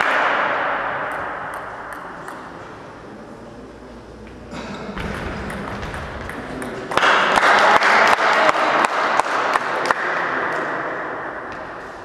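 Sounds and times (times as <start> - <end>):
applause in echoing hall: 6.9 - 10.5.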